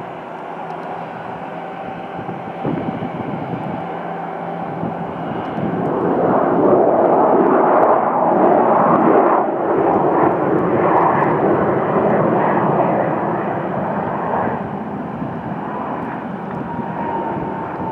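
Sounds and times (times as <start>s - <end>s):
jet engines running loud: 0.0s - 17.9s.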